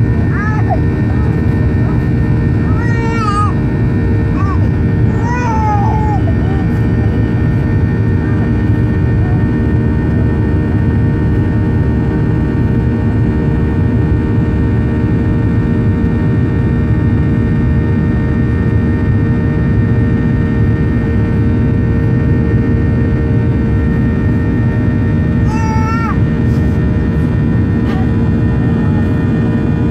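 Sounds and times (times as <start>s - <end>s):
airplane cabin engine rush: 0.0s - 29.9s
high-pitched voice: 2.7s - 3.6s, 4.4s - 7.2s, 25.5s - 26.2s.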